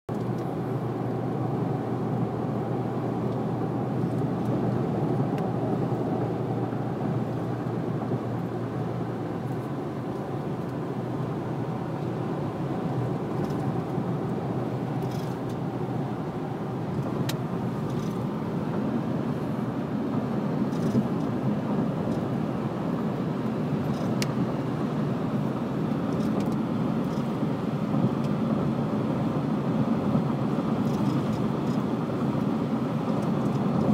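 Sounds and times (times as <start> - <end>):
car road and engine noise: 0.1 - 33.9.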